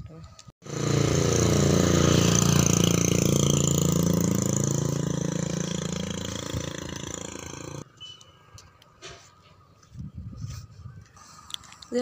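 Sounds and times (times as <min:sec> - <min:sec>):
motorcycle passing by: 0:00.6 - 0:07.9.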